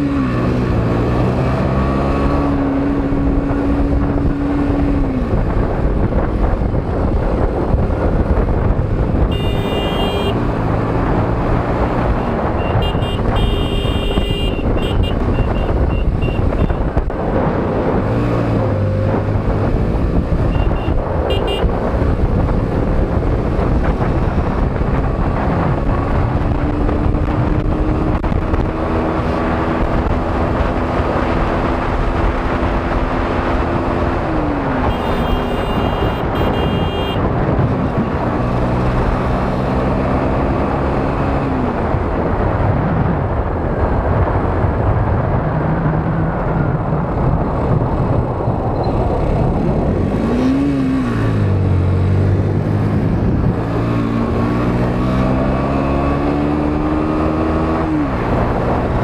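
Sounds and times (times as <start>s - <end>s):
motorcycle engine: 0.0s - 41.4s
wind noise on microphone: 0.0s - 59.0s
horn beeps: 9.3s - 10.4s, 12.2s - 16.9s, 20.5s - 21.7s, 34.9s - 37.2s.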